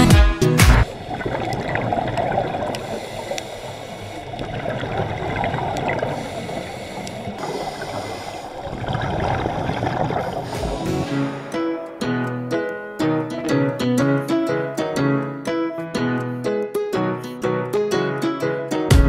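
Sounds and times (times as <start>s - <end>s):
underwater water rushing: 0.8s - 11.6s
rising bubbles: 0.9s - 2.9s, 4.3s - 6.3s, 8.6s - 11.1s
faint clicks: 1.5s - 8.3s.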